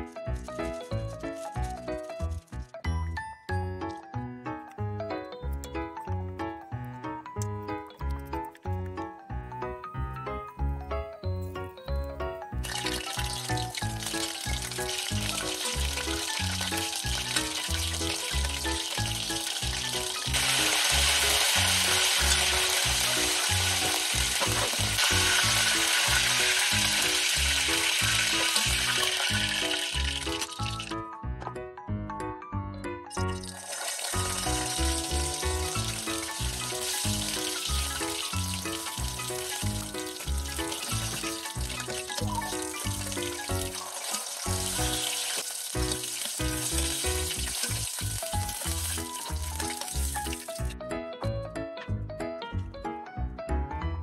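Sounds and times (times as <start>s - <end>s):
fish deep-frying in oil: 12.6s - 30.9s, 33.1s - 50.7s
background music with bass: 45.8s - 54.0s.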